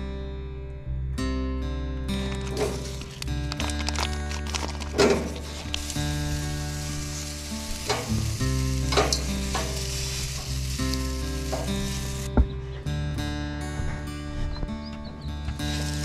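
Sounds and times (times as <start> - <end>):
hot dogs sizzling on grill: 2.5 - 12.3, 15.6 - 16.0.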